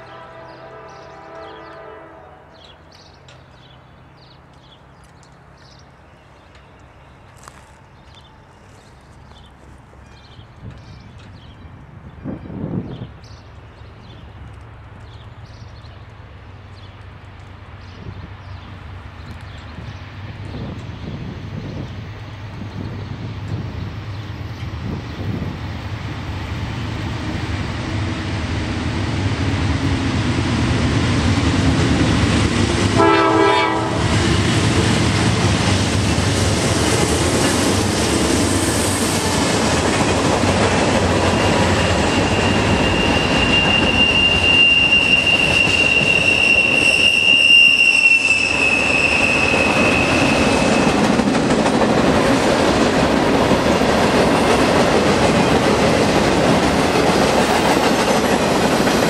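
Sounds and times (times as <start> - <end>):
clickety-clack of freight cars: 0.0 - 59.0
freight train rolling past: 0.0 - 59.0
high wheel squeal: 41.2 - 51.1.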